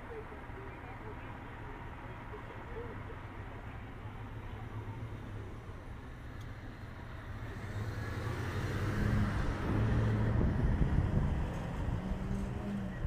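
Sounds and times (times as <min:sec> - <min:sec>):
vehicle engine idling: 0:00.0 - 0:08.2
street noise: 0:00.0 - 0:13.0.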